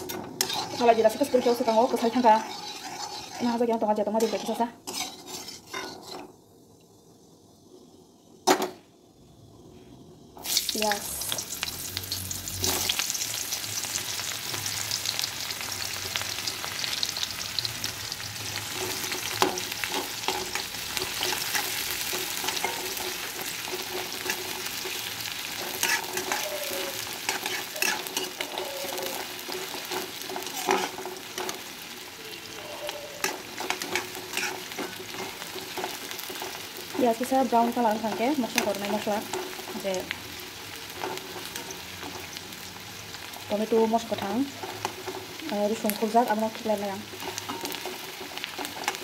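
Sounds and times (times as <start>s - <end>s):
spatula scraping a metal pan: 0.0s - 6.3s, 18.7s - 31.7s, 32.6s - 39.9s, 47.1s - 49.0s
onions sizzling in hot oil: 0.0s - 49.0s.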